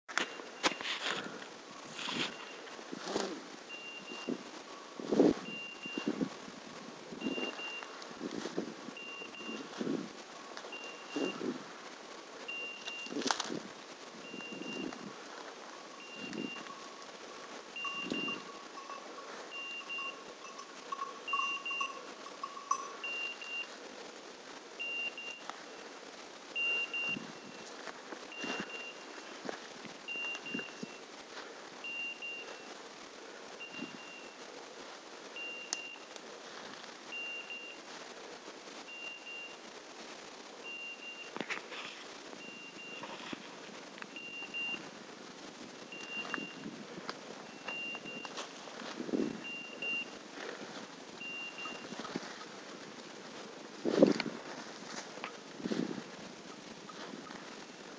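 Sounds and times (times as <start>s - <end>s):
footsteps through dry leaves: 0.1s - 26.0s, 40.6s - 57.9s
low steady tone: 0.1s - 39.8s, 40.5s - 57.9s
beeper collar short high beep: 9.0s - 9.7s, 16.0s - 16.8s, 17.8s - 23.7s, 26.6s - 27.6s, 28.4s - 29.0s, 46.0s - 46.6s, 51.2s - 51.9s.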